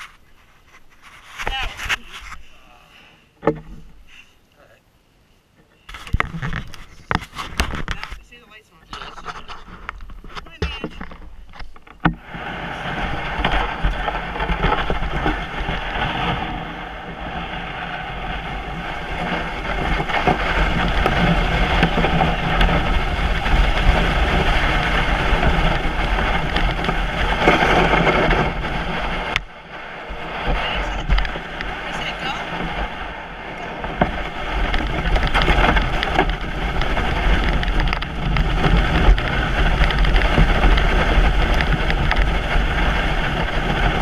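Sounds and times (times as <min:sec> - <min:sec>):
plastic sled scraping on snow: 0:00.0 - 0:02.6, 0:05.9 - 0:44.0.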